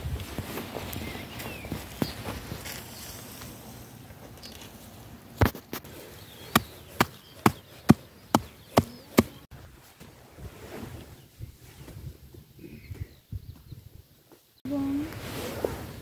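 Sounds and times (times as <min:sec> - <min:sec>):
hand tool striking shale ground: 0:06.5 - 0:09.4.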